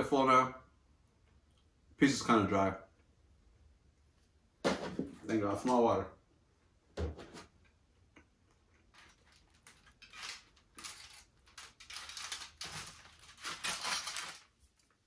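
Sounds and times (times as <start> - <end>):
pizza crust crackling: 8.7 - 15.0
aluminium foil crinkling: 8.9 - 15.0.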